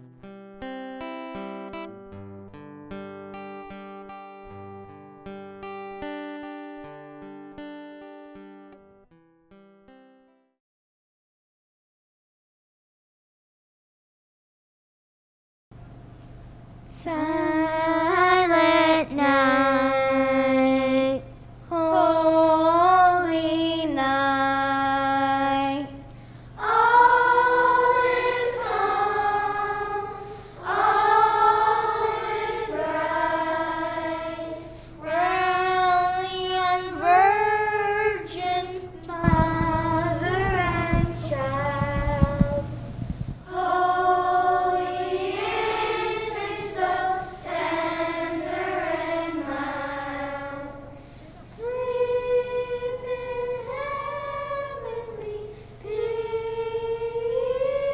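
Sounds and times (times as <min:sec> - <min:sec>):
person singing slow melody: 0:16.9 - 0:42.9, 0:49.5 - 0:57.9
rough noise: 0:39.1 - 0:43.7.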